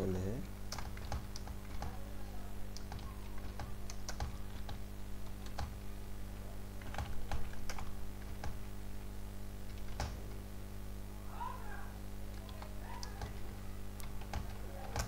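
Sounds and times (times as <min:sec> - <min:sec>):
steady low hum: 0:00.0 - 0:15.0
typing on computer keyboard: 0:00.7 - 0:02.0, 0:02.8 - 0:04.8, 0:06.8 - 0:08.6, 0:09.7 - 0:10.2, 0:12.4 - 0:13.4, 0:14.0 - 0:15.0.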